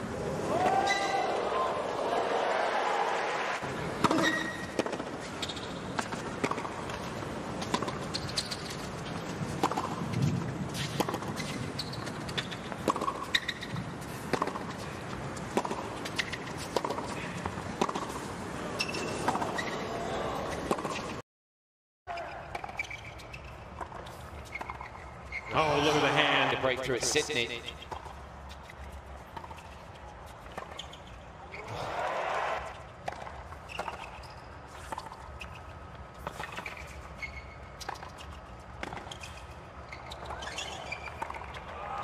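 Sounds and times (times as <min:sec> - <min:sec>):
low crowd hum: 0:00.0 - 0:04.1
rackets hitting tennis ball: 0:03.6 - 0:21.2, 0:22.2 - 0:31.0, 0:32.6 - 0:37.2, 0:37.8 - 0:42.0.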